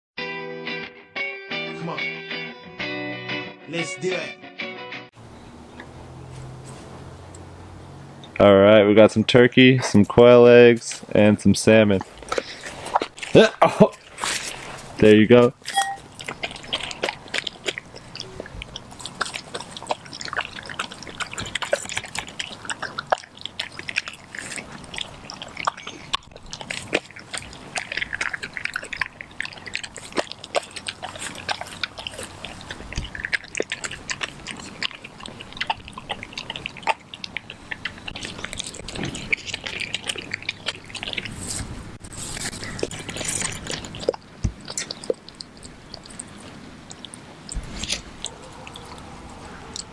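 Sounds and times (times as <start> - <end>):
dog licking and chewing meat: 10.9 - 49.9.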